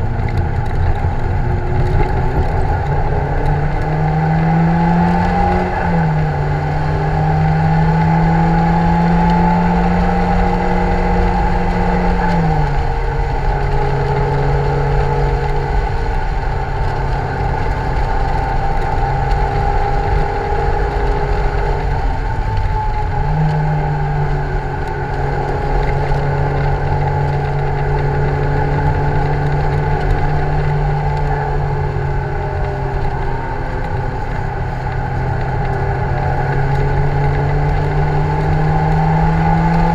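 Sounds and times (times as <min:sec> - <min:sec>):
car engine revving: 0:00.0 - 0:39.9
road and wind noise: 0:00.0 - 0:39.9.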